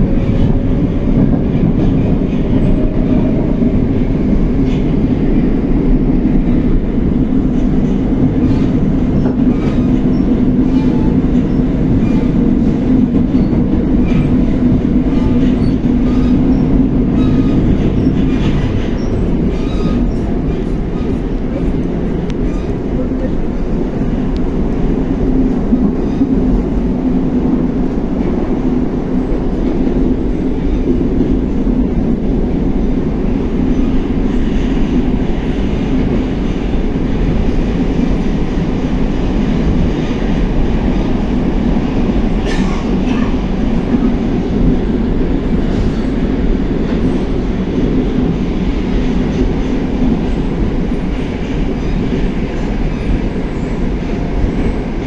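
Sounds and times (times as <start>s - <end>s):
subway train wheels rumbling: 0.0s - 55.0s.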